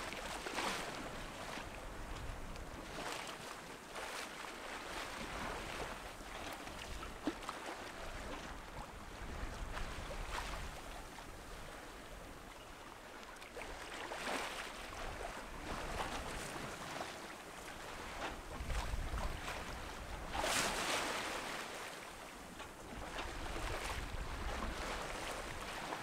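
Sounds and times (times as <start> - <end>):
water rushing along a hull: 0.0 - 26.0
wind rumbling on microphone: 8.1 - 11.8, 18.2 - 20.5, 22.9 - 26.0.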